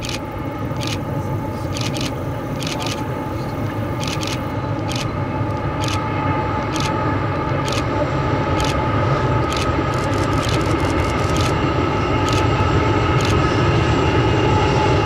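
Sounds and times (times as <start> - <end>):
diesel locomotive engine rumble: 0.0 - 15.0
camera shutter clicks: 8.6 - 8.8, 9.5 - 11.6.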